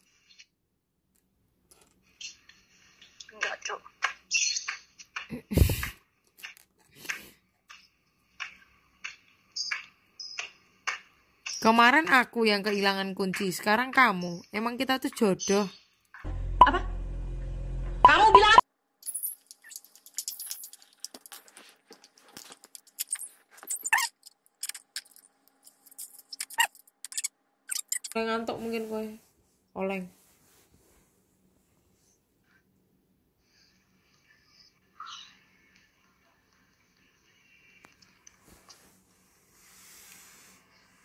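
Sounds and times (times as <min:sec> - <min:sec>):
small objects clicking and clinking: 0:19.0 - 0:28.2.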